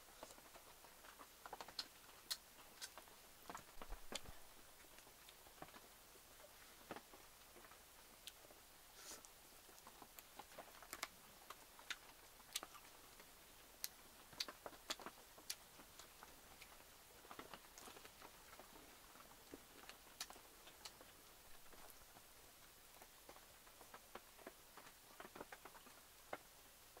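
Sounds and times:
chewing: 0:00.2 - 0:05.8, 0:06.9 - 0:22.0.

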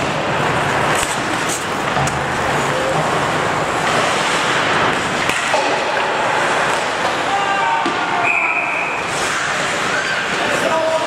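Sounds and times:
hockey stick clicks: 0:00.0 - 0:02.8, 0:03.8 - 0:07.2
skates on ice: 0:00.0 - 0:11.0.

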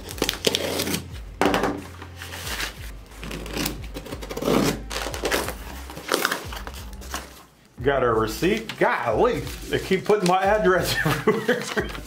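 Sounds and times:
packing tape ripping: 0:00.0 - 0:01.2, 0:01.8 - 0:07.5, 0:09.6 - 0:12.0
cardboard scraping and rustling: 0:00.0 - 0:07.5, 0:08.5 - 0:12.0.

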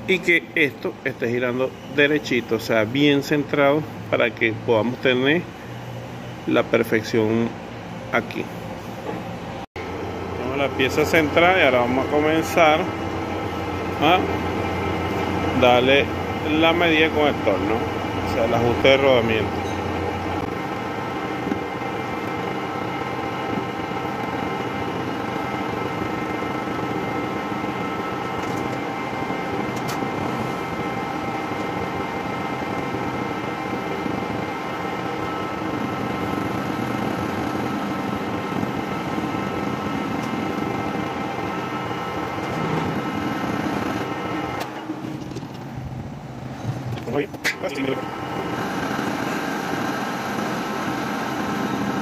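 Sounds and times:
metal lathe whirring: 0:09.0 - 0:45.4, 0:47.6 - 0:52.0
whining tones: 0:09.0 - 0:52.0.

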